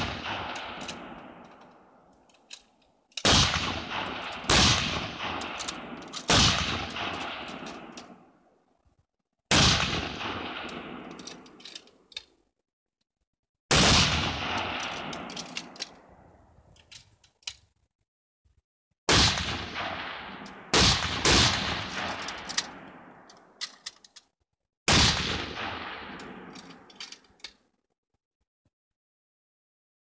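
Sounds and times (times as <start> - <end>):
rifle shots echoing: 0.0 - 2.0, 3.2 - 8.4, 9.5 - 11.6, 13.7 - 16.2, 19.1 - 23.3, 24.9 - 26.9.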